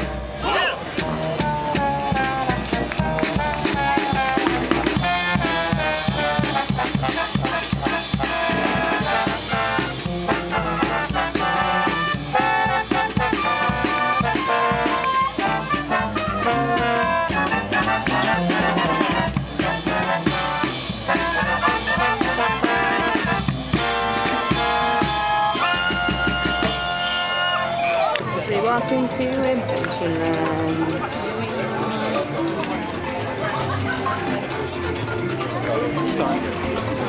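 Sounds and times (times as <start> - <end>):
marching brass band playing: 0.0 - 37.0
snare and bass drum beat: 1.0 - 27.6.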